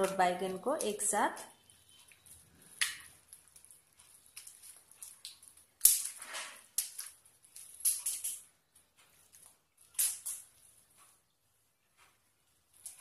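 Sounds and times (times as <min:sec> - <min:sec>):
hand squishing and crunching food: 0:02.1 - 0:05.9.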